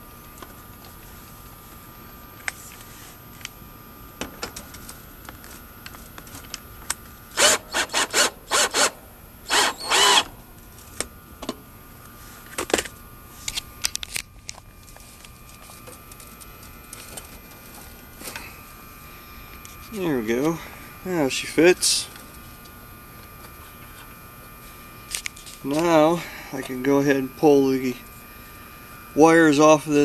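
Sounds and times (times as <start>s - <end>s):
cordless drill driving screw: 7.4s - 10.3s.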